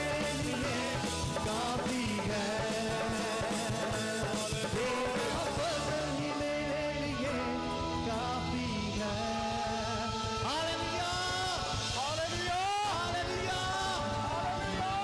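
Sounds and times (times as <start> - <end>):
dhol drum beat: 0.0 - 6.2
men singing into microphones: 0.0 - 15.0.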